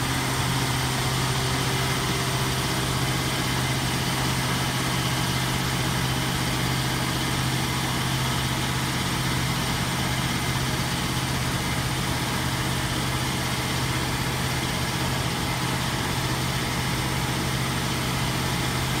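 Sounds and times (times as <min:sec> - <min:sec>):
machinery hum: 0:00.0 - 0:13.0.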